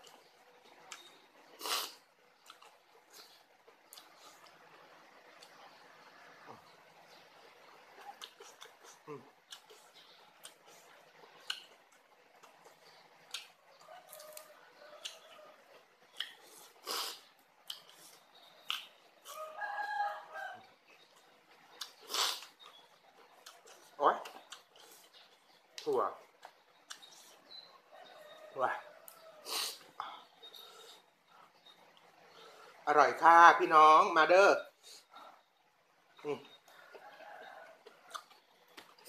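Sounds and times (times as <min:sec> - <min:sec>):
biting and chewing: 0:07.9 - 0:19.6, 0:20.9 - 0:27.7, 0:37.8 - 0:39.0
rooster crowing: 0:13.8 - 0:15.7, 0:19.2 - 0:20.8, 0:27.8 - 0:29.7, 0:36.7 - 0:38.2.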